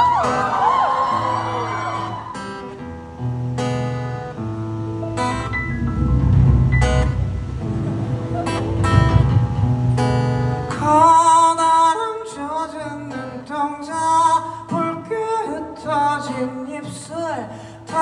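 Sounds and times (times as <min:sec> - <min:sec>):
acoustic guitar strumming: 0:00.0 - 0:18.0
man singing: 0:10.7 - 0:18.0.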